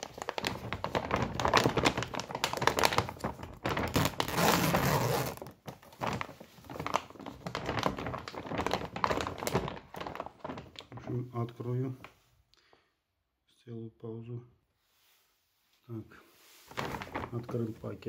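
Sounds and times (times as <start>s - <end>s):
paper sack crinkling and rustling: 0.0s - 12.2s, 16.6s - 18.0s.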